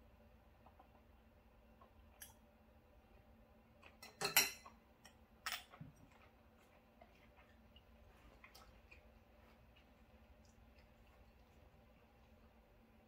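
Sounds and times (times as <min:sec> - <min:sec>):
glassware clinking on glass table: 0:04.0 - 0:04.7.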